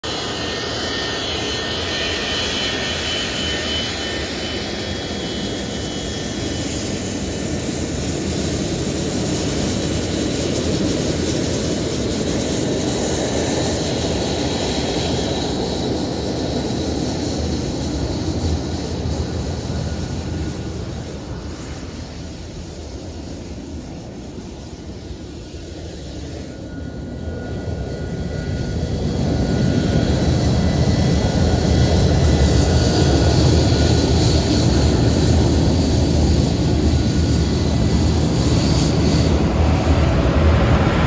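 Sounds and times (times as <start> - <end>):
jet engine rumble: 0.0 - 41.0
jet engine whine: 0.0 - 41.0.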